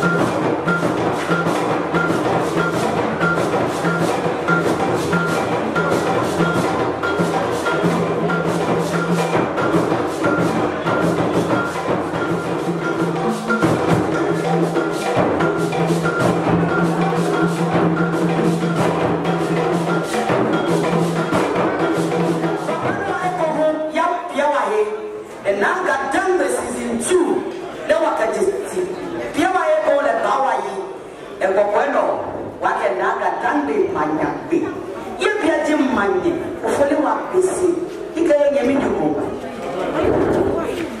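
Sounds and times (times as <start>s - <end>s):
drums playing dance music: 0.0s - 24.3s.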